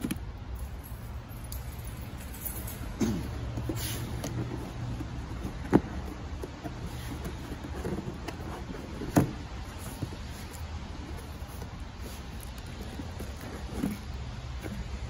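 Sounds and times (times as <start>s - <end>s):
cardboard box tearing: 4.0s - 15.0s.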